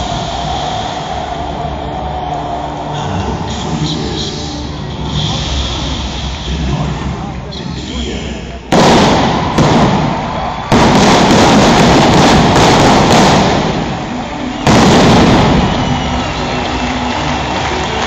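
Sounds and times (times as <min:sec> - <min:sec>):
pyrotechnics bursts: 0:08.7 - 0:16.9.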